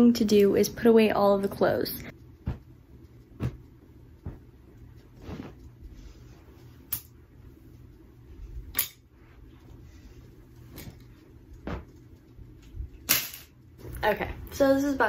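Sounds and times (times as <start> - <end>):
clothes dropped on carpet: 3.4 - 3.6.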